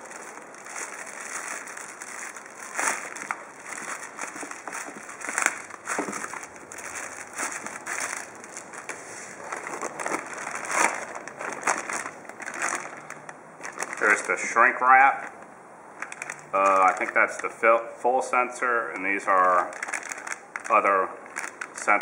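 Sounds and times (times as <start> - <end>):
plastic bags crinkling: 0.0 - 17.6, 19.0 - 22.0.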